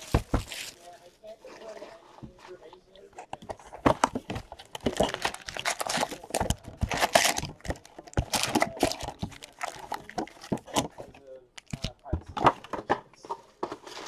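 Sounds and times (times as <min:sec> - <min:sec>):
wrapper crinkling and tearing: 0:00.0 - 0:01.2, 0:04.7 - 0:11.9
foil packs crackling: 0:00.0 - 0:01.4, 0:04.7 - 0:12.0
cardboard rustling: 0:00.0 - 0:14.0.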